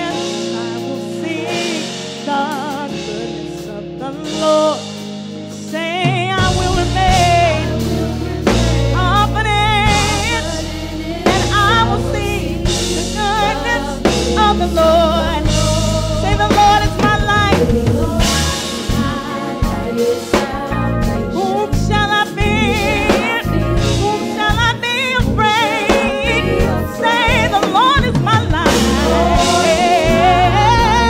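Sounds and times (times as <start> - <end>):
drum kit: 0.0 - 31.0
bass line: 5.7 - 31.0
singers with vibrato: 6.3 - 31.0.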